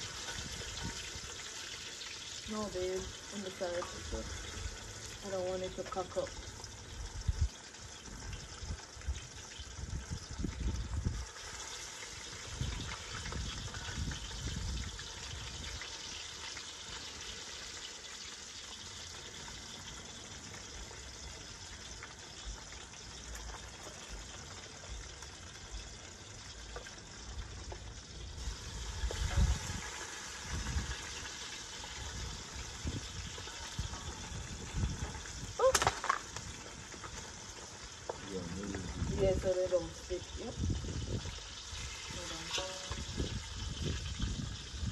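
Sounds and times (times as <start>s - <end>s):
fish sizzling in hot oil: 0.0s - 44.9s
low rumbles: 38.2s - 41.4s.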